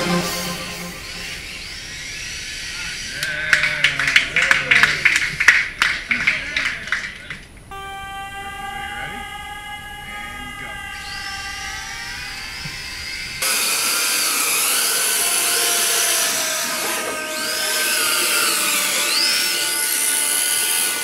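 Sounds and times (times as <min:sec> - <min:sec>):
steady held tones: 0:00.0 - 0:03.1, 0:07.7 - 0:20.3
toy car electric motors whining: 0:11.8 - 0:21.0.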